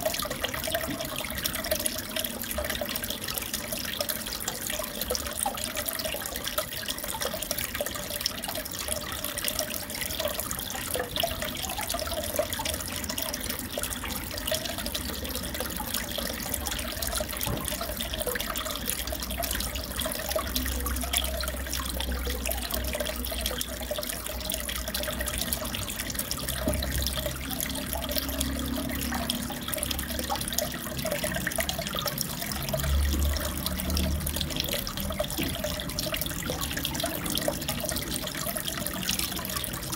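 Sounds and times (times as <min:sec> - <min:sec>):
aquarium water trickling: 0:00.0 - 0:39.9.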